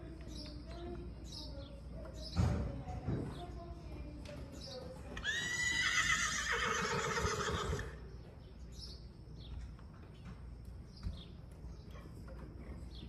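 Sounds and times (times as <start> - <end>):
horse whinnying: 5.2 - 8.0.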